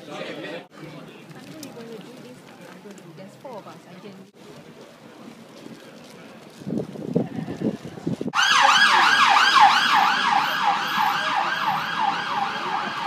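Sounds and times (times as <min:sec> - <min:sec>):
police siren yelping: 0:08.4 - 0:13.0.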